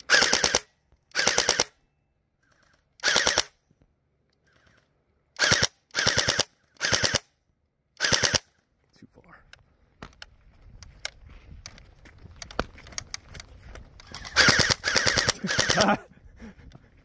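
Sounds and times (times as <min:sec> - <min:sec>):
gel blaster firing bursts: 0:00.0 - 0:01.8, 0:03.0 - 0:03.5, 0:05.4 - 0:07.3, 0:08.0 - 0:08.5, 0:14.1 - 0:16.0.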